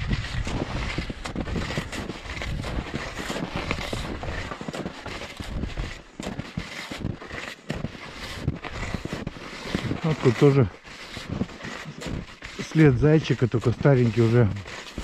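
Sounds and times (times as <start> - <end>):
wind buffeting microphone: 0.0 - 4.4
skis crunching over snow: 0.0 - 15.0.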